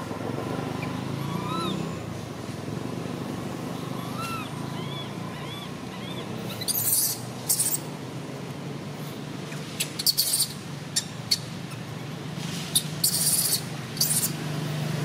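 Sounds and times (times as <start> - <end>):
infant monkey squealing: 0.8 - 1.9, 3.8 - 7.9, 9.8 - 11.8, 12.7 - 14.4.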